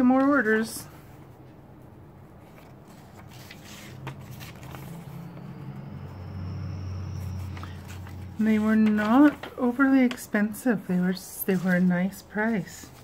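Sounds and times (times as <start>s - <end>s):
low hum: 1.5s - 9.0s
faint high whine: 4.8s - 8.4s
paper rustling and tapping: 7.6s - 10.4s.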